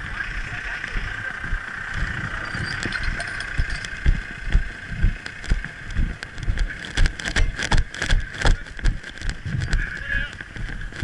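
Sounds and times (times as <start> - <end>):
steady high drone: 0.0 - 7.6
wind buffeting microphone: 0.0 - 11.0.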